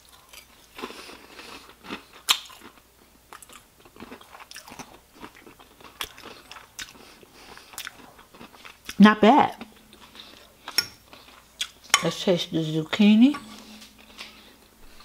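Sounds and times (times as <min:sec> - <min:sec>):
crunching fried chicken: 0:00.0 - 0:09.0.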